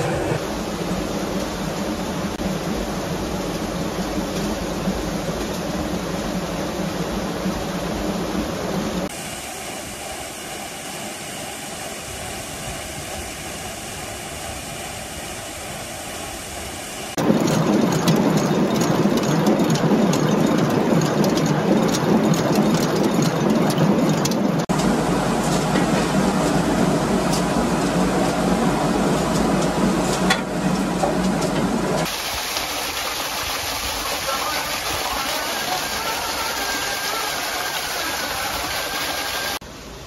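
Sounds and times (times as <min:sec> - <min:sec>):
flowing water rushing: 0:09.0 - 0:24.8, 0:32.0 - 0:40.0.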